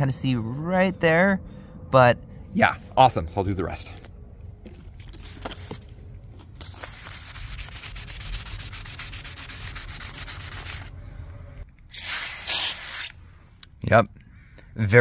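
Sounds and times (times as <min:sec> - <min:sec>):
sandpaper rubbing strokes: 0:06.6 - 0:10.9
hand sanding scrapes: 0:06.8 - 0:10.9.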